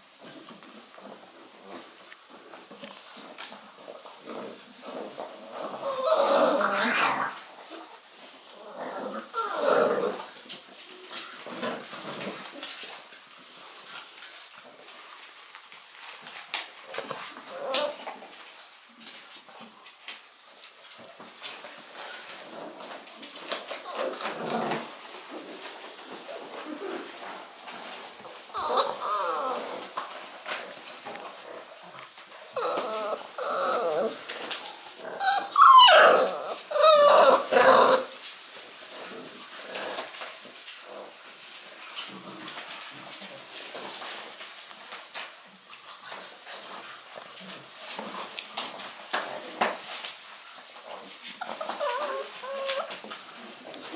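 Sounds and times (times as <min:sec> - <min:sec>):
paws clicking and scuffing: 0:00.0 - 0:53.9
puppies whimpering: 0:05.5 - 0:07.4, 0:08.5 - 0:10.2, 0:28.5 - 0:29.9, 0:32.4 - 0:38.2, 0:51.4 - 0:53.1
puppy yapping: 0:28.5 - 0:29.7, 0:35.2 - 0:38.1.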